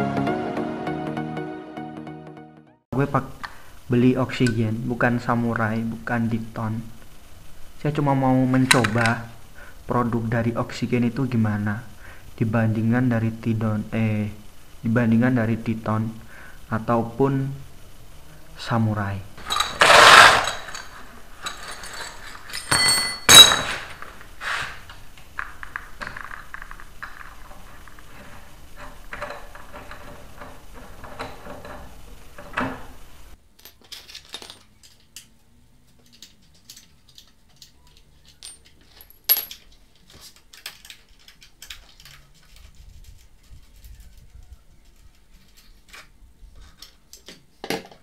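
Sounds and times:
metal tools clanking on concrete: 0:19.4 - 0:24.6, 0:33.6 - 0:35.3, 0:38.2 - 0:39.8.

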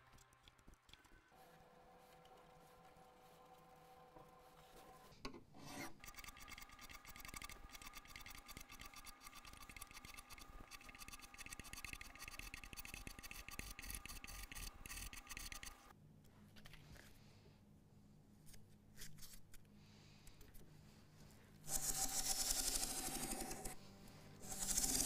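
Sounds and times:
metal file rasping on metal: 0:07.7 - 0:15.8, 0:24.4 - 0:25.0.

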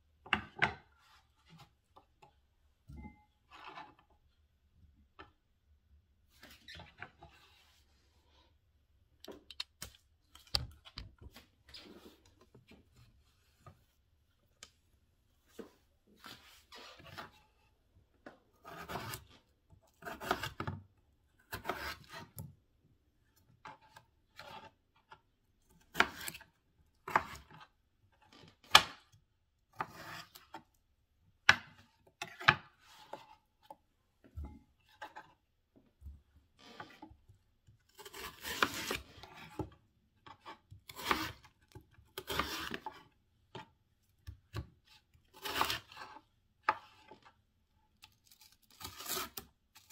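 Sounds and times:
knife slicing potatoes: 0:18.6 - 0:19.4, 0:20.0 - 0:20.7, 0:21.5 - 0:22.4, 0:25.8 - 0:26.5, 0:27.1 - 0:27.6, 0:29.8 - 0:30.6, 0:37.9 - 0:39.6, 0:40.3 - 0:41.5, 0:42.1 - 0:43.1, 0:45.3 - 0:47.2, 0:48.3 - 0:49.9.

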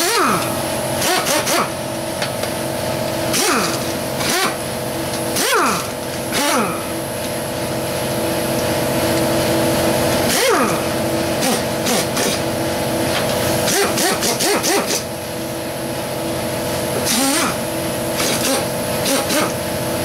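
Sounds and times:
pneumatic air ratchet bursts: 0:00.0 - 0:01.8, 0:03.3 - 0:07.0, 0:10.3 - 0:12.5, 0:13.6 - 0:15.2, 0:17.0 - 0:19.6
steady machine hum: 0:00.0 - 0:20.0.

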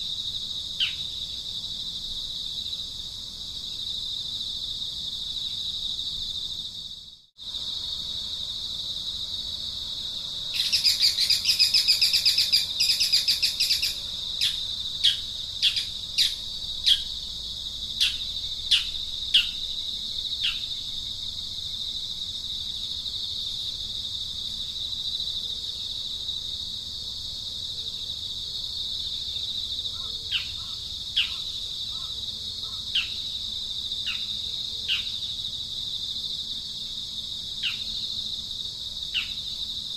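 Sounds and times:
high-pitched insect drone: 0:00.0 - 0:27.3.

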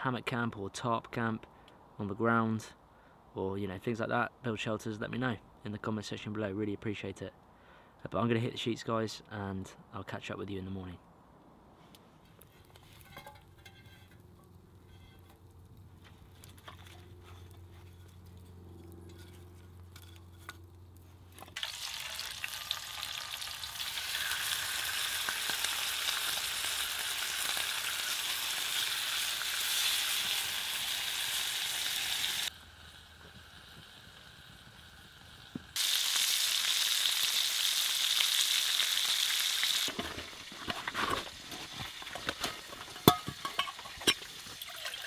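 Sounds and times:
bacon sizzling in a frying pan: 0:21.6 - 0:40.6.

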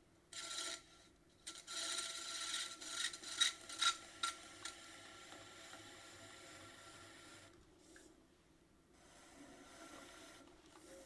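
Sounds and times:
faint steady hum: 0:00.0 - 0:11.0
metal tool scraping clay: 0:00.3 - 0:04.8.

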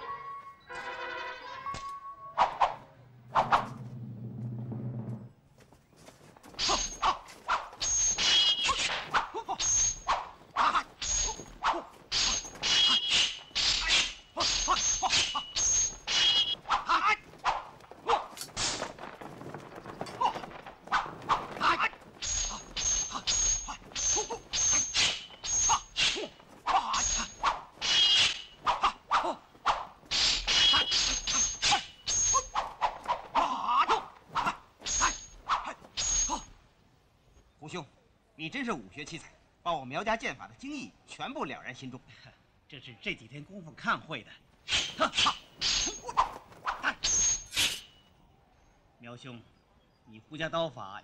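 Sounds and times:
swords clanging: 0:06.6 - 0:07.2, 0:10.8 - 0:16.6, 0:22.2 - 0:28.6, 0:30.1 - 0:32.8, 0:34.9 - 0:35.4, 0:44.7 - 0:46.2, 0:47.0 - 0:48.0
blade swishes: 0:47.5 - 0:48.0.

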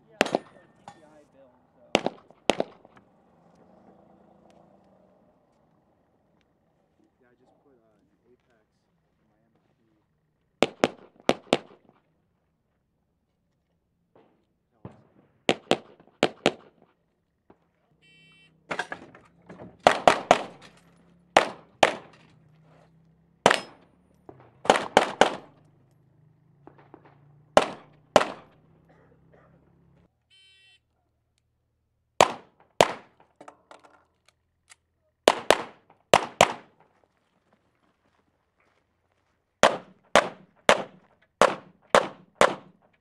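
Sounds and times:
pistol shots echoing: 0:00.0 - 0:00.9, 0:01.9 - 0:03.0, 0:10.6 - 0:11.9, 0:14.2 - 0:16.8, 0:19.8 - 0:20.7, 0:21.3 - 0:22.2, 0:23.4 - 0:25.8, 0:26.6 - 0:29.4, 0:32.2 - 0:33.4, 0:35.2 - 0:36.9, 0:39.6 - 0:42.9.

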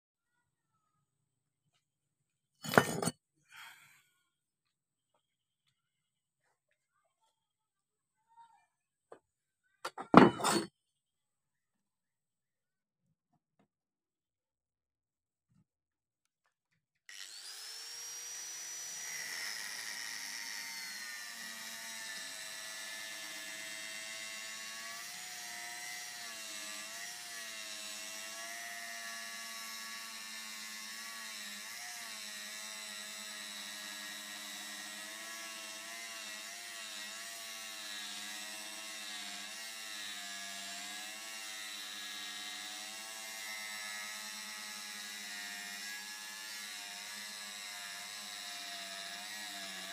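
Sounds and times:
angle grinder grinding metal: 0:02.6 - 0:03.1, 0:09.9 - 0:10.7, 0:17.1 - 0:49.9.

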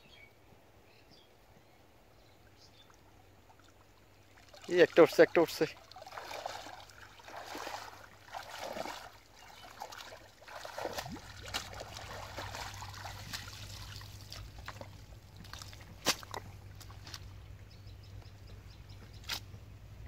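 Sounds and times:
water trickling and dripping: 0:02.7 - 0:17.2
sloshing through shallow water: 0:02.8 - 0:17.4.

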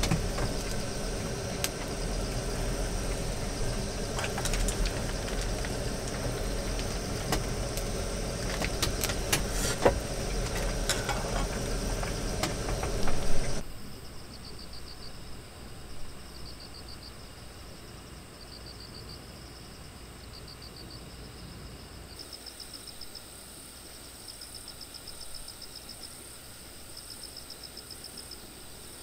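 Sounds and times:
gas stove burner rushing: 0:00.0 - 0:13.6
insects chirping in trills: 0:00.0 - 0:29.0.

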